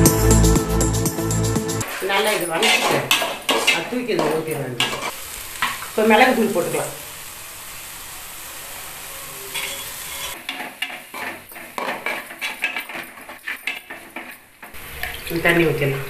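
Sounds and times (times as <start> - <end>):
utensil scraping cooking pots: 1.8 - 5.2, 9.5 - 15.4
onion masala sizzling in a pot: 1.8 - 16.0.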